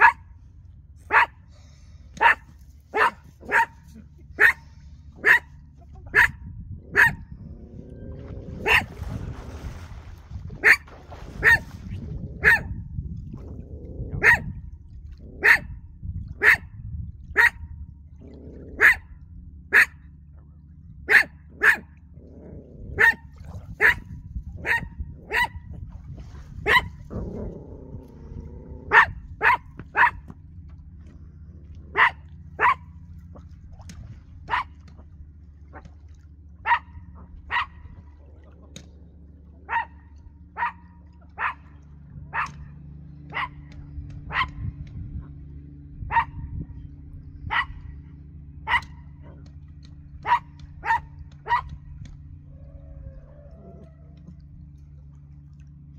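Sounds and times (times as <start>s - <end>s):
dog barking: 0.0s - 0.2s, 1.1s - 1.4s, 2.2s - 3.8s, 4.4s - 4.6s, 5.2s - 5.5s, 6.1s - 6.4s, 7.0s - 7.2s, 8.6s - 8.9s, 10.6s - 10.8s, 11.4s - 11.6s, 12.4s - 12.7s, 14.2s - 14.5s, 15.4s - 15.7s, 16.4s - 16.6s, 17.4s - 17.6s, 18.8s - 19.0s, 19.7s - 20.0s, 21.1s - 21.9s, 23.0s - 23.2s, 23.8s - 24.0s, 24.6s - 25.6s, 26.7s - 27.0s, 28.9s - 30.2s, 32.0s - 32.9s, 34.5s - 34.7s, 36.6s - 37.8s, 39.7s - 40.0s, 40.6s - 41.6s, 42.3s - 42.6s, 43.3s - 43.6s, 44.3s - 44.6s, 46.1s - 46.4s, 47.5s - 47.8s, 48.7s - 49.4s, 50.2s - 51.7s
low steady hum: 0.0s - 55.9s.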